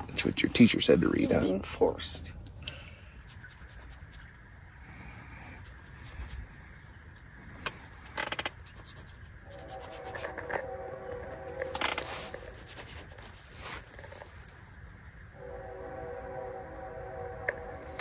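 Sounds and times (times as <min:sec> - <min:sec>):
rustling and scratching of handling: 0:03.2 - 0:04.4, 0:07.6 - 0:14.6
faint pitched tone: 0:09.4 - 0:12.8, 0:15.3 - 0:18.0.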